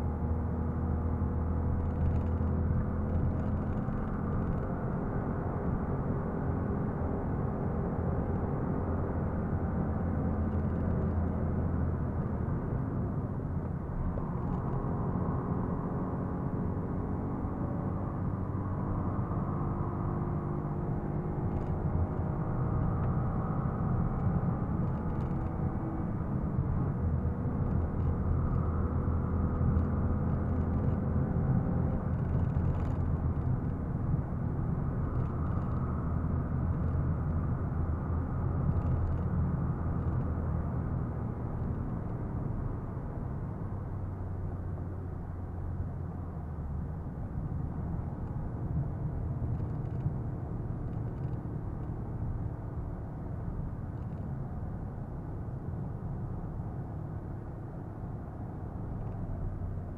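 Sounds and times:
tyre and road noise: 19.4 - 59.9.

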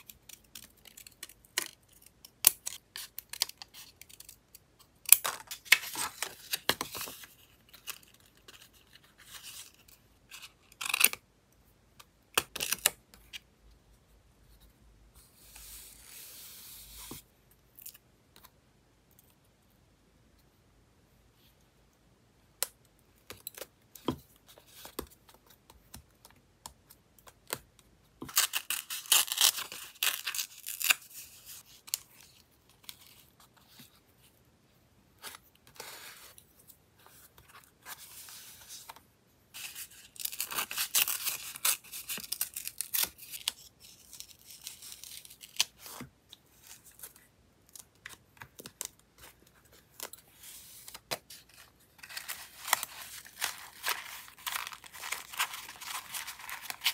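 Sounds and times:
scratchy paper rustling: 50.3 - 56.9.

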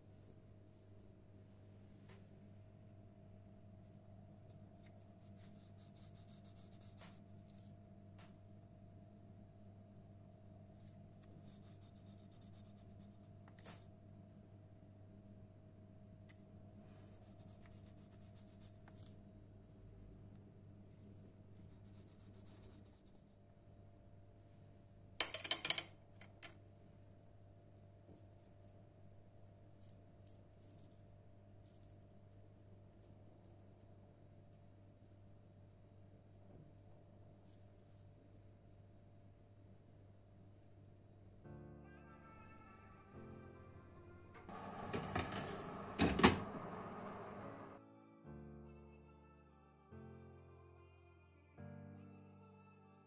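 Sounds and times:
faint steady hum: 0.0 - 47.8
low hum: 42.6 - 47.8.

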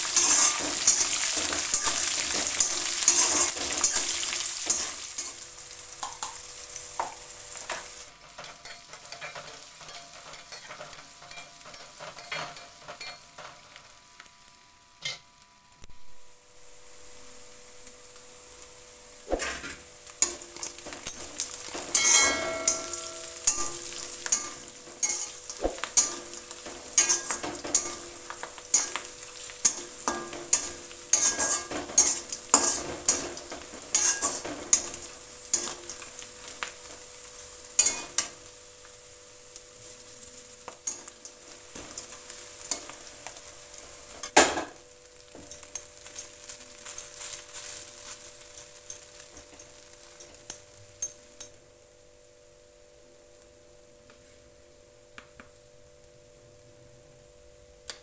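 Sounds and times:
spatula scraping and clinking pan: 0.0 - 5.4, 6.0 - 13.6, 19.4 - 38.4, 40.8 - 43.5, 45.4 - 51.2
food sizzling in hot oil: 0.0 - 56.2.

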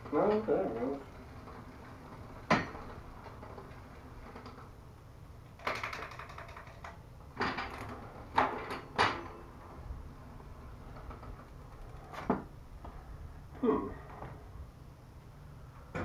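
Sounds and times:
bicycle wheel spinning: 0.0 - 7.2.

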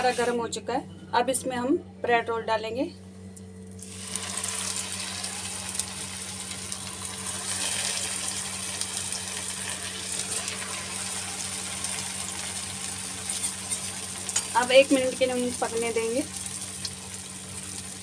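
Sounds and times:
bread deep-frying in oil: 3.7 - 18.0.

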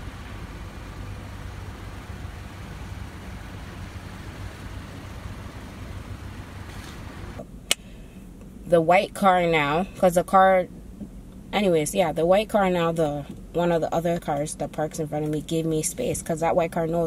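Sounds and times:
low rumble and hum of parking garage: 0.0 - 17.0
sharp click: 7.7 - 7.9.

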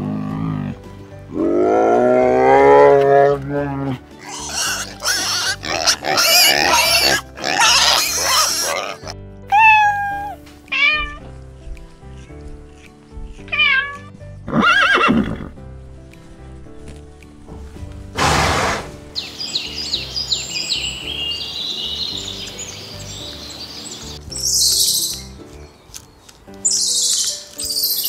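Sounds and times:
background music: 0.0 - 28.0
piglets squealing: 4.2 - 11.1
cat meowing: 9.5 - 11.2, 13.4 - 14.1
horse whinnying: 13.4 - 15.6, 18.2 - 19.0.

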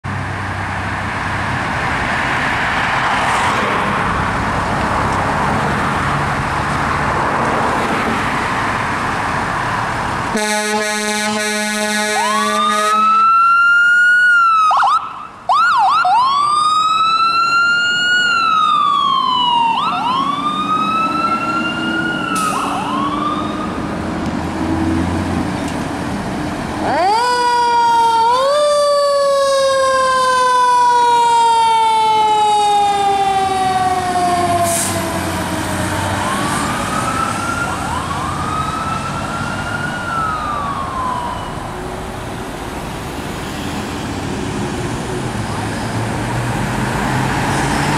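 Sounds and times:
deep fire engine siren: 7.2 - 25.2, 26.6 - 42.6
ambulance siren wailing: 10.4 - 24.0, 26.8 - 42.2.

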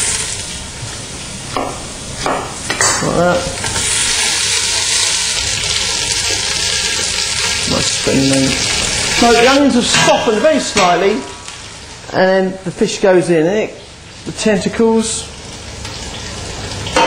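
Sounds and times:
garlic and onion sizzling in oil: 0.0 - 17.0.

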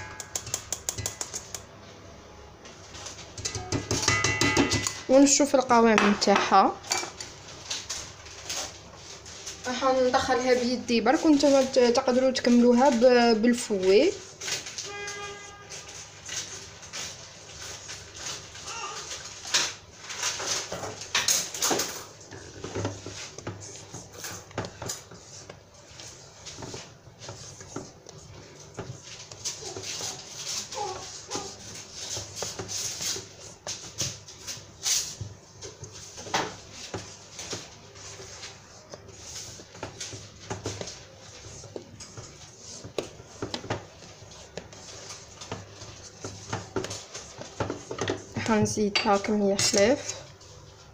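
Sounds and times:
spatula scraping batter in bowl: 22.1 - 50.2.

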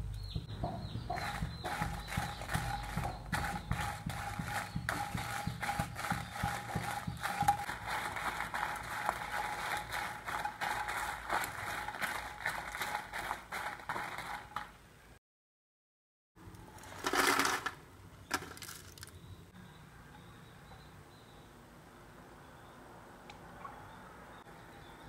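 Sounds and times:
spatula stirring chillies in pan: 1.1 - 14.7.

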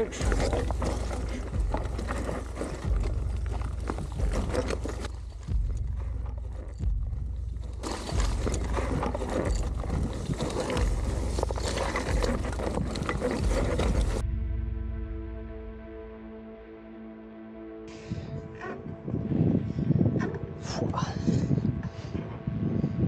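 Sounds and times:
bike tyres rolling over stones: 0.0 - 14.2
wind rumble on microphone: 18.0 - 23.0.

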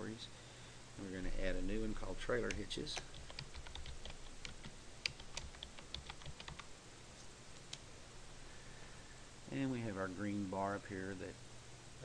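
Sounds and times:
keyboard typing: 2.4 - 6.7.

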